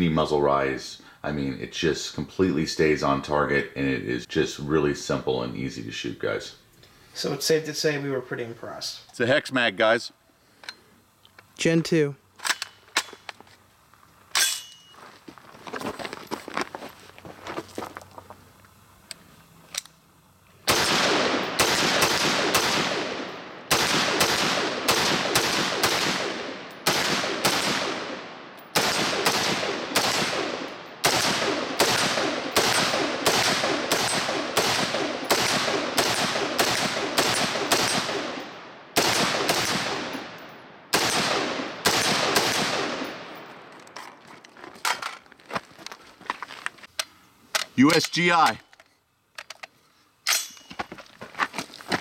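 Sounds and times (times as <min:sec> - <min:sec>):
rifle shots with echo: 0:20.7 - 0:43.7.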